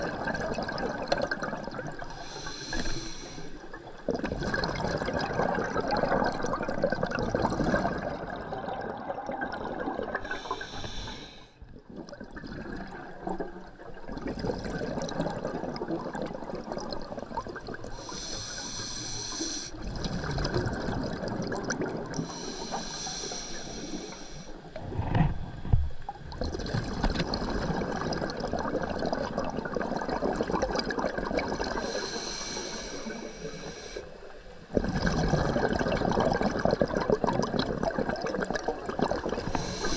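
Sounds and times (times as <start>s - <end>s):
diver breathing through regulator: 2.1s - 3.7s, 10.2s - 11.6s, 17.9s - 19.8s, 22.2s - 24.6s, 31.7s - 34.2s, 39.4s - 39.9s.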